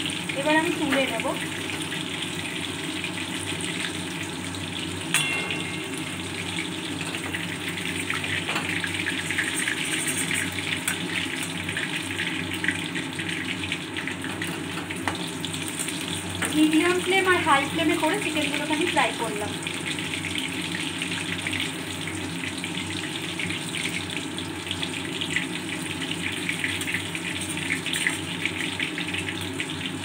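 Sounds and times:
chicken deep-frying in hot oil: 0.0 - 30.0.

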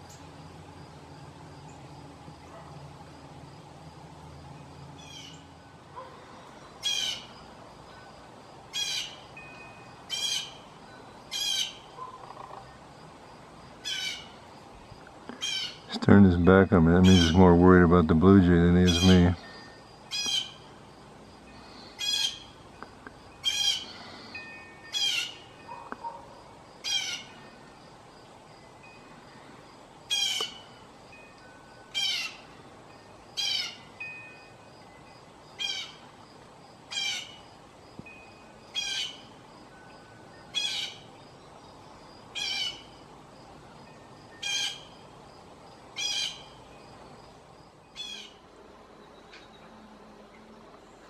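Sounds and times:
blue jay harsh calls: 5.0 - 5.4, 6.8 - 7.4, 8.7 - 9.4, 10.1 - 10.7, 11.3 - 12.7, 13.8 - 14.4, 15.4 - 15.9, 17.0 - 17.6, 18.8 - 19.4, 20.1 - 20.7, 21.6 - 22.6, 23.4 - 24.2, 24.9 - 25.9, 26.8 - 27.4, 30.1 - 30.8, 31.9 - 32.5, 33.4 - 34.0, 35.6 - 36.1, 36.9 - 37.5, 38.7 - 39.4, 40.5 - 41.1, 42.3 - 43.0, 44.4 - 45.0, 46.0 - 46.6, 47.9 - 48.4.

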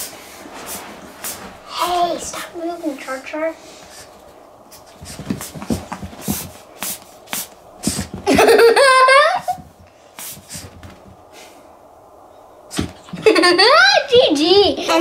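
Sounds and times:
brush strokes through fur: 0.0 - 8.2, 10.0 - 11.6.

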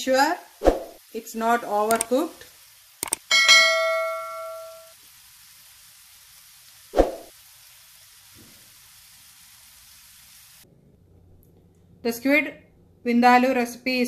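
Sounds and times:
bell chime: 3.3 - 4.9.

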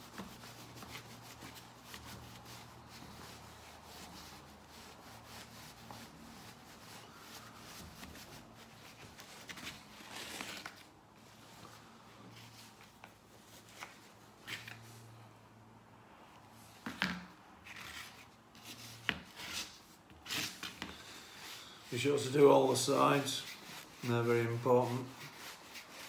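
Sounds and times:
cloth rubbing metal: 0.0 - 10.8
soft scuffing on cardboard: 0.0 - 14.9.

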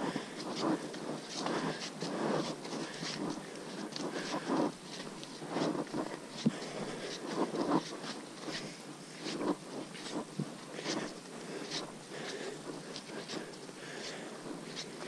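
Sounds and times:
footsteps crunching on trail: 0.0 - 15.0.

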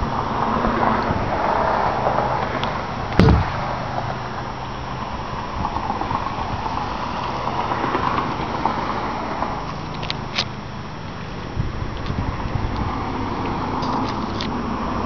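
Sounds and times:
wind noise on microphone: 0.0 - 10.4, 11.4 - 15.0
boat hatch lid thumping shut: 3.2 - 3.6.

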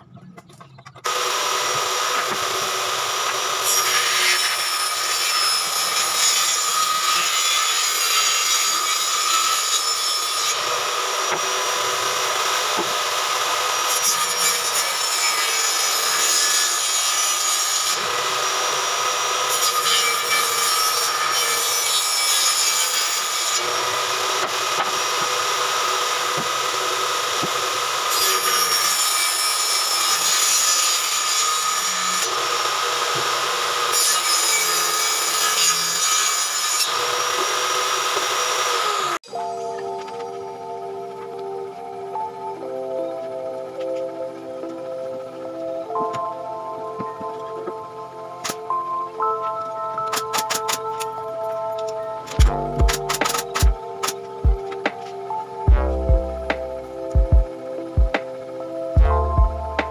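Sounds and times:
saw ripping through wood: 1.0 - 39.3, 52.3 - 54.2
table saw whining: 1.0 - 59.9.

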